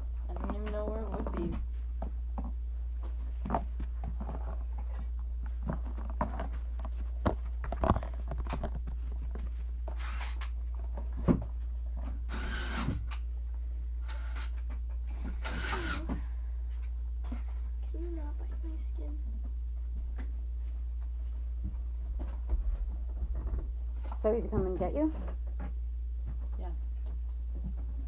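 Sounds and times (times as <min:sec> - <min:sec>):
steady low hum: 0:00.0 - 0:28.0
light knocks and thumps: 0:10.8 - 0:12.0, 0:21.6 - 0:26.6.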